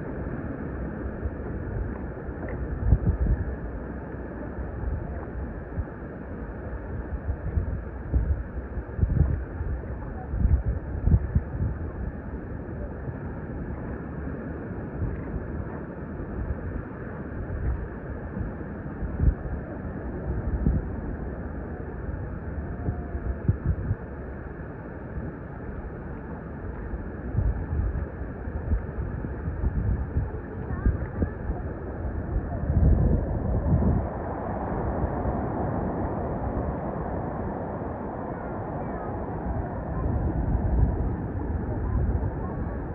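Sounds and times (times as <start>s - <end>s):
wind buffeting microphone: 0.0s - 24.2s, 25.1s - 42.9s
rushing water: 30.5s - 42.9s.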